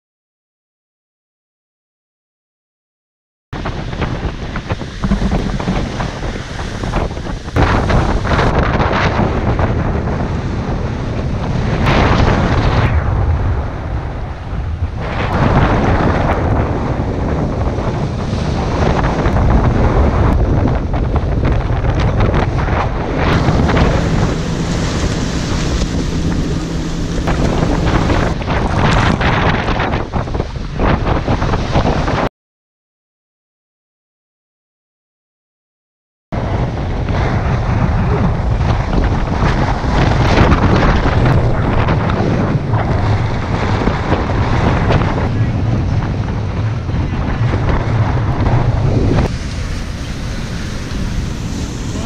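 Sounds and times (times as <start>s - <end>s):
breaking seas: 3.6s - 14.0s, 15.0s - 30.6s, 36.5s - 52.0s
waves rushing along hull: 3.6s - 32.3s, 36.4s - 52.0s
wind buffeting microphone: 3.6s - 32.3s, 36.4s - 52.0s
sharp splashes: 23.2s - 28.4s.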